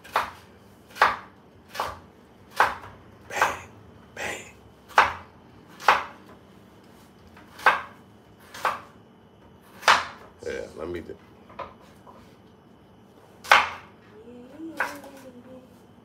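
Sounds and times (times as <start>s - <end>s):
knife chopping on cutting board: 0.0s - 3.7s, 4.9s - 6.4s, 7.0s - 9.0s, 9.6s - 10.3s, 13.4s - 13.9s.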